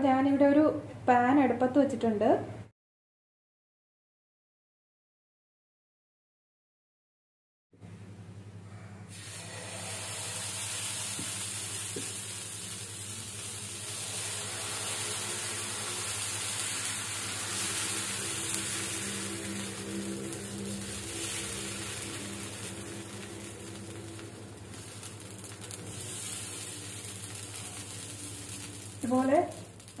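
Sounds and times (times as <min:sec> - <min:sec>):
batter sizzling on griddle: 0:09.1 - 0:30.0
low hum: 0:12.0 - 0:30.0.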